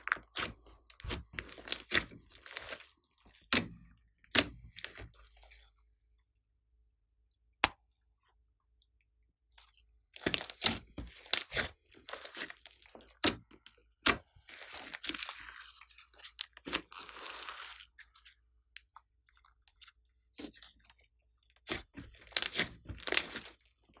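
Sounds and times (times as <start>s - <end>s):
slime popping and crackling: 0.0s - 3.7s, 10.2s - 17.8s, 21.6s - 23.8s.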